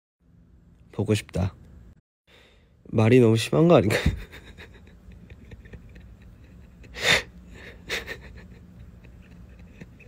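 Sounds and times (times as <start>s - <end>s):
man laughing softly: 3.8s - 10.0s.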